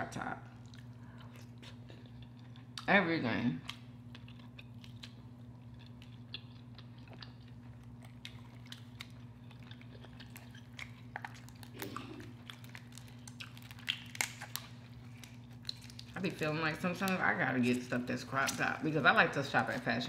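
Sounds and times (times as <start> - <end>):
steady low hum: 0.0 - 20.0
wet chewing: 0.6 - 2.9, 3.6 - 18.7
crab shell cracking: 3.7 - 16.3.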